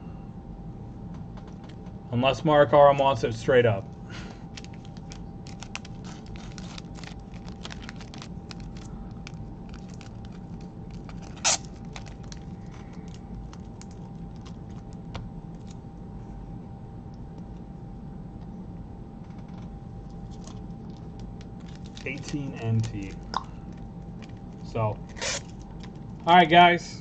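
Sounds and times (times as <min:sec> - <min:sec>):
steady faint hum: 0:00.0 - 0:27.0.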